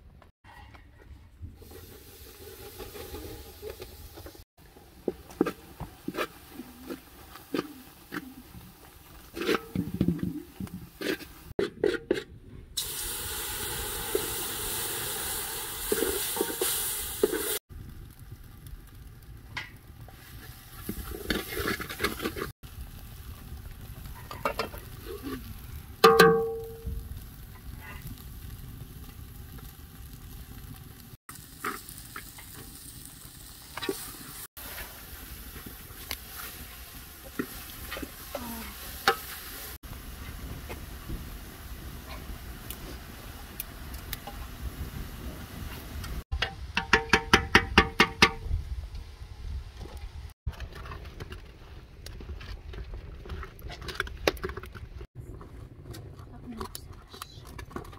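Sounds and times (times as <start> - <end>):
sizzling hiss: 1.6 - 9.4, 12.8 - 19.0, 20.0 - 46.2.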